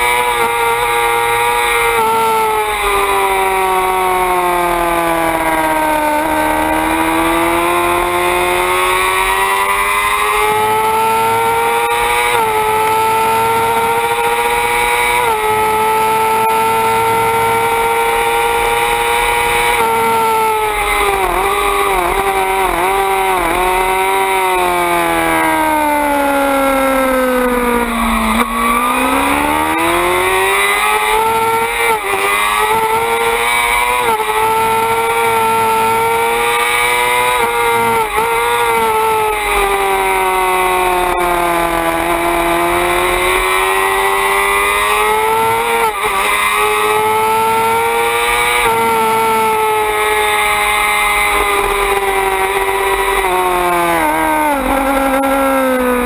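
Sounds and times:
motorcycle engine at high revs: 0.0s - 56.0s.

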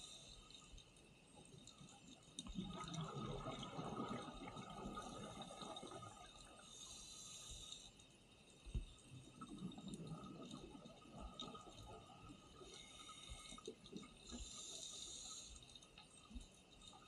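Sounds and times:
faint steady hiss: 0.0s - 17.0s
underwater regulator bubbles: 2.5s - 6.1s.

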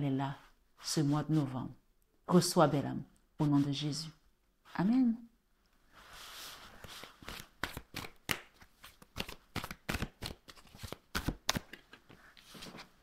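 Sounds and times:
cards shuffled by hand: 6.4s - 13.0s.

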